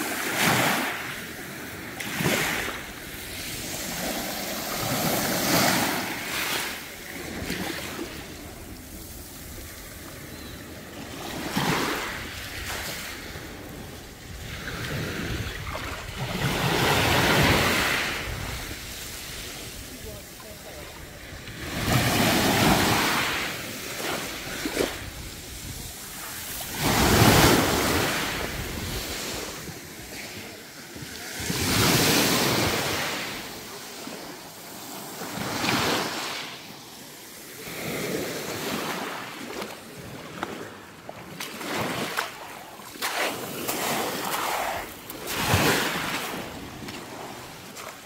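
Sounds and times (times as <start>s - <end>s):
waves washing on pebble beach: 0.0s - 48.0s.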